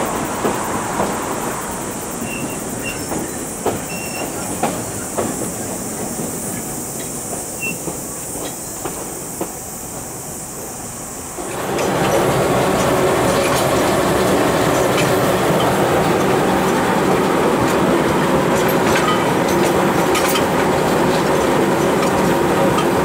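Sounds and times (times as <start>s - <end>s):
diesel locomotive running: 0.0s - 23.0s
train wheels clicking over rail joints: 0.0s - 23.0s
faint high squeaks: 3.9s - 4.4s, 7.6s - 7.9s.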